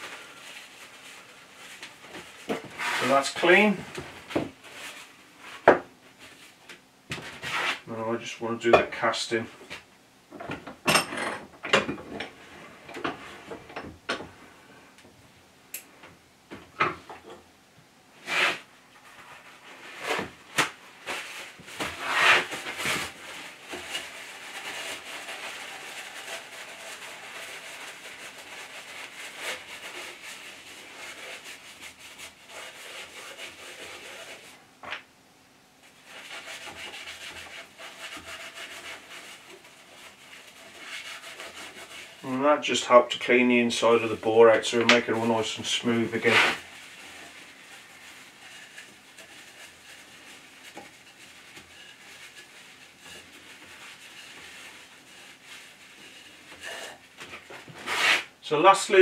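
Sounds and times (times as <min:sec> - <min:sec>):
cloth scrubbing inside metal bore: 0:45.0 - 0:57.2.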